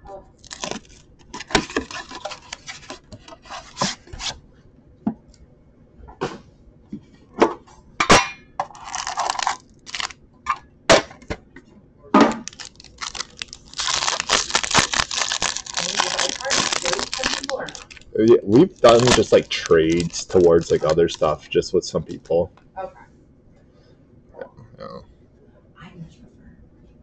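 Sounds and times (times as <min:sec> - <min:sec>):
plastic wrap crinkling: 0:00.4 - 0:04.4, 0:08.7 - 0:10.2, 0:12.4 - 0:22.3.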